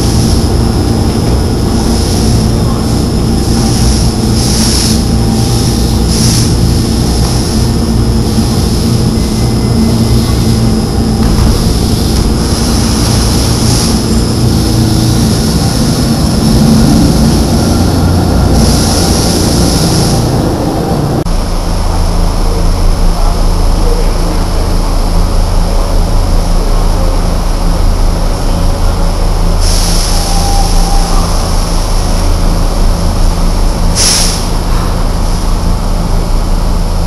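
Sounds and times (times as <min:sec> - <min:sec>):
hiss: 0:00.0 - 0:20.4, 0:29.6 - 0:32.6, 0:33.2 - 0:35.5
trolley equipment rumbling: 0:00.0 - 0:37.0.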